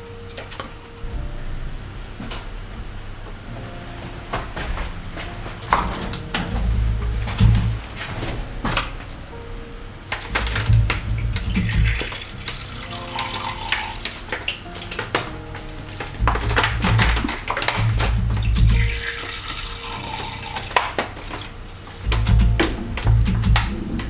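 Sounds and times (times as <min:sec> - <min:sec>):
soft music with bass pulse: 0:00.0 - 0:24.0
liquid pouring and splashing: 0:10.2 - 0:23.7.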